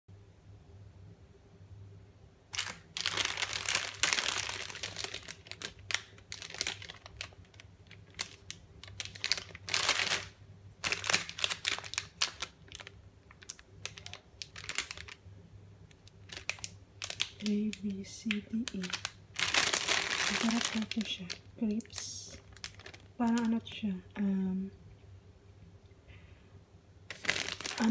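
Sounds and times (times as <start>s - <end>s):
low steady hum: 0.1s - 27.9s
plastic wrapper crinkling: 2.5s - 15.3s, 15.9s - 23.9s, 27.1s - 27.9s.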